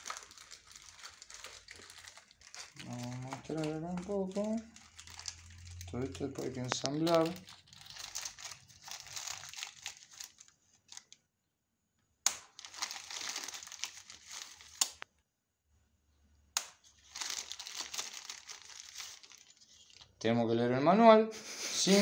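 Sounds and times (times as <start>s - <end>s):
plastic bag crinkling: 0.0s - 11.2s, 12.4s - 15.0s, 16.7s - 20.1s.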